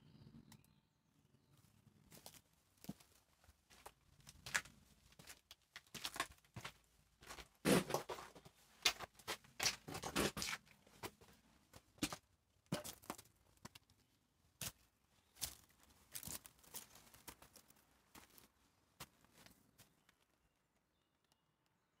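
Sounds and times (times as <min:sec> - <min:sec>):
footsteps on dirt path: 0:02.1 - 0:11.2, 0:12.0 - 0:13.3, 0:15.4 - 0:19.9
footsteps crunching on rubble: 0:02.1 - 0:13.8, 0:15.4 - 0:19.9.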